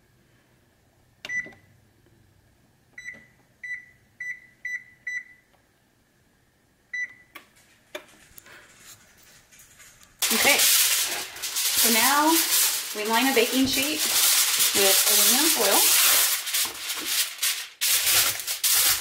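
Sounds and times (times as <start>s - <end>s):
oven control panel beeps: 1.2s - 1.7s, 3.0s - 5.5s, 6.9s - 7.4s.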